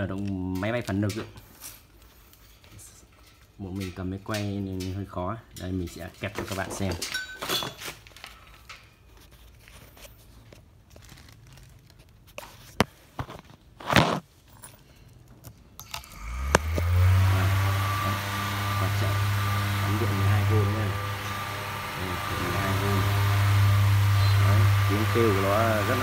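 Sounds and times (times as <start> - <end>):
handling rustle: 6.0 - 15.3
electric fan humming: 15.8 - 26.0.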